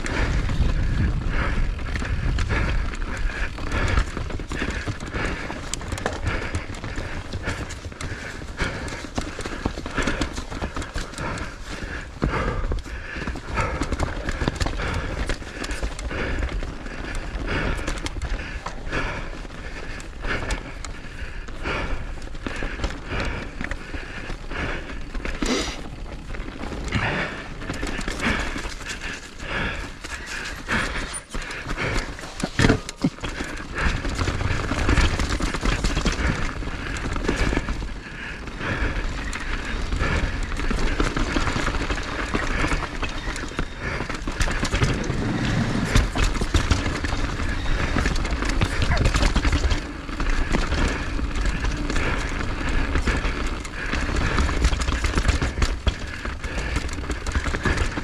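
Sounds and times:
steady low rumble: 0:00.0 - 0:13.8, 0:43.8 - 0:49.2.

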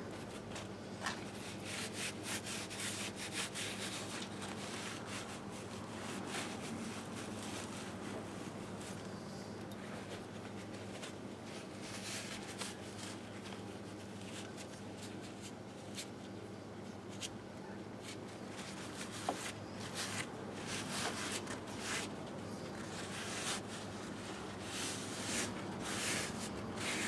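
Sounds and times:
steady low hum: 0:00.0 - 0:27.0
rag wiping metal: 0:22.8 - 0:27.0.

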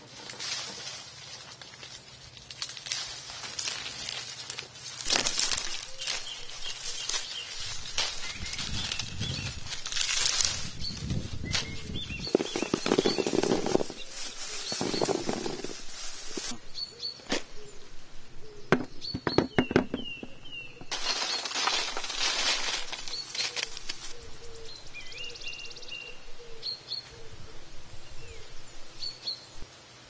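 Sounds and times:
dry rustling: 0:00.0 - 0:16.6, 0:20.8 - 0:24.2
small birds chirping: 0:03.9 - 0:29.6.

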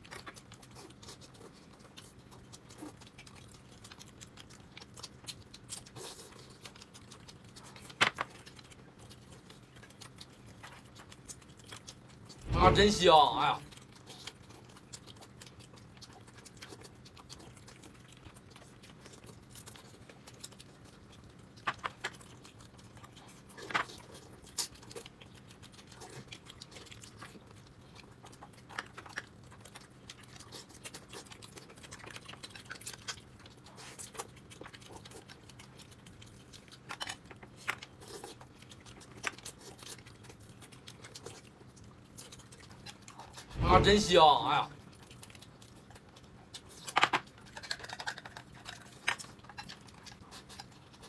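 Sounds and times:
small clicks and smacks: 0:00.0 - 0:12.4, 0:13.7 - 0:43.5, 0:44.8 - 0:51.0
person chewing: 0:00.0 - 0:12.8, 0:13.4 - 0:43.9, 0:44.6 - 0:51.0
low steady hum: 0:01.6 - 0:23.3, 0:43.2 - 0:46.5.

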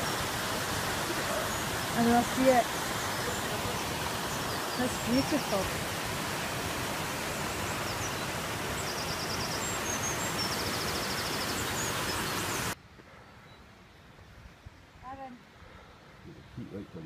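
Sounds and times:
waterfall rushing: 0:00.0 - 0:12.8.

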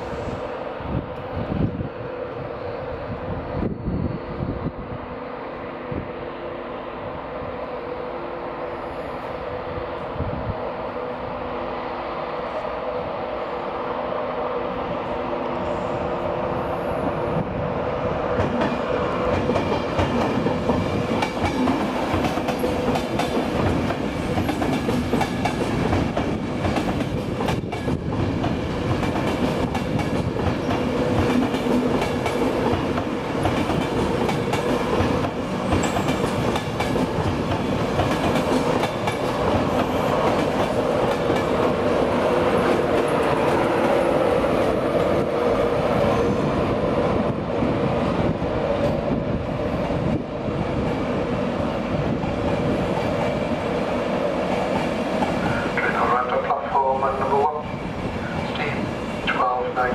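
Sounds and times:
train hum: 0:00.0 - 0:59.9
train wheels clickety-clack: 0:18.3 - 0:46.5, 0:51.8 - 0:56.1.

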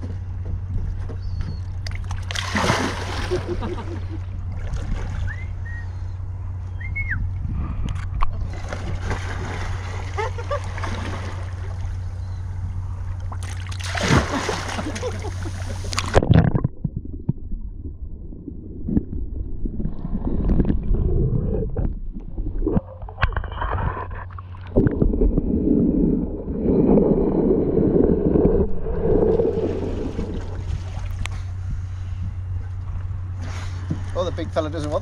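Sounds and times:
muffled underwater sloshing: 0:00.0 - 0:35.0.

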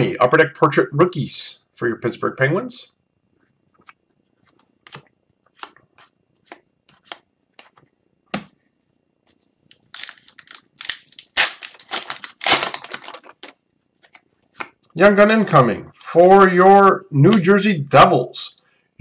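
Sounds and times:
foil pack tearing and crinkling: 0:09.6 - 0:13.6.

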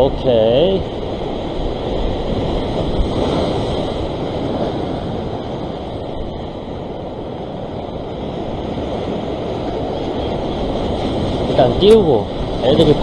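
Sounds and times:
ocean surf over rocks: 0:00.0 - 0:13.0
wind on microphone: 0:00.0 - 0:13.0.

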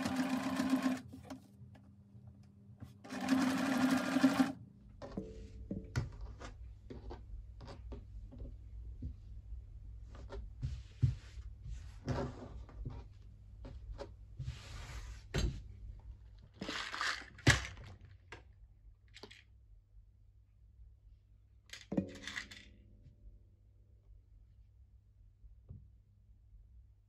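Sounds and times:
felt rustling and sliding: 0:14.4 - 0:15.4.

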